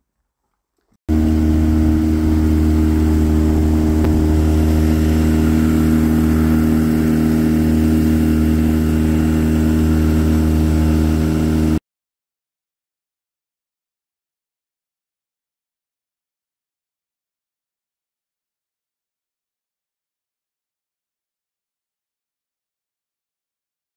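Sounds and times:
outboard motor running: 0:01.1 - 0:11.8.

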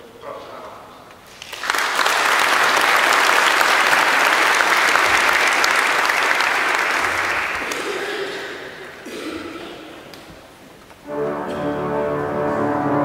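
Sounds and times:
audience applauding: 0:01.3 - 0:10.3.

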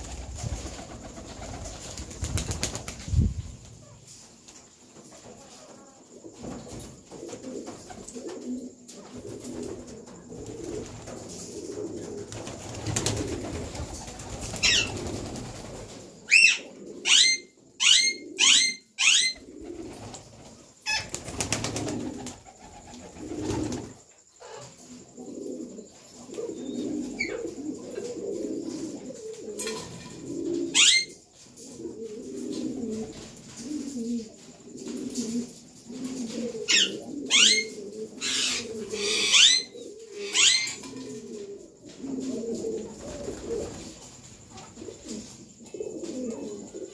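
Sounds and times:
pigeon wings flapping: 0:00.0 - 0:03.2, 0:09.2 - 0:16.0, 0:19.6 - 0:24.0
pigeons cooing: 0:05.4 - 0:46.9
parakeets shrill calls: 0:14.6 - 0:14.9, 0:36.7 - 0:40.8.

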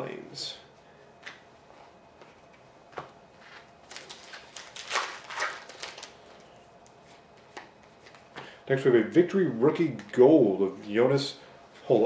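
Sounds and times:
foil wrapper tearing and crinkling: 0:03.8 - 0:06.2.

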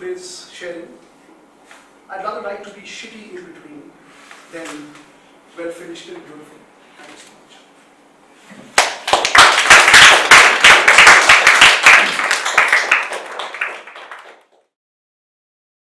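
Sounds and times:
audience applauding: 0:08.8 - 0:14.7.

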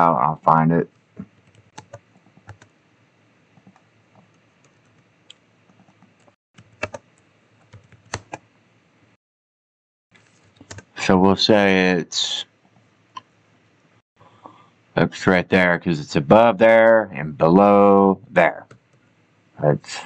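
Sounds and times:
faint room hiss: 0:00.0 - 0:06.3, 0:10.2 - 0:20.0
keyboard and mouse clicks: 0:01.2 - 0:02.7, 0:03.6 - 0:08.4, 0:10.4 - 0:10.9.

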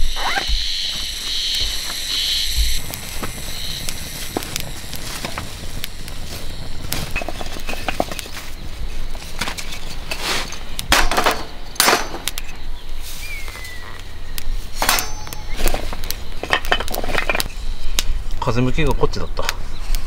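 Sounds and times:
firewood blocks clacking: 0:10.7 - 0:12.5, 0:14.8 - 0:17.6.

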